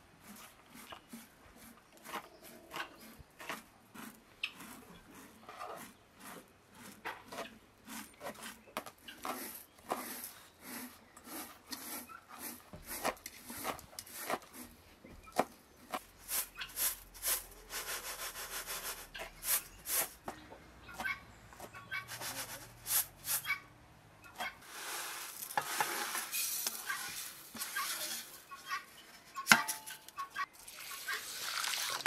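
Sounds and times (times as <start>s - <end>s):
rice grains rubbed in metal tray: 9.2s - 14.7s, 15.9s - 20.2s, 22.0s - 23.6s, 24.6s - 28.5s.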